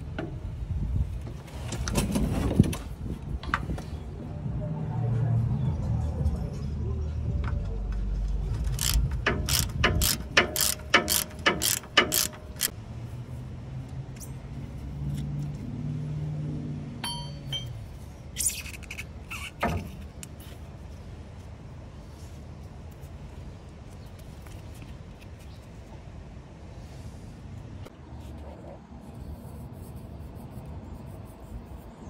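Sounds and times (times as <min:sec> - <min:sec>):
socket ratchet clicking: 0:08.7 - 0:12.8
faint metallic ping: 0:17.0 - 0:17.8.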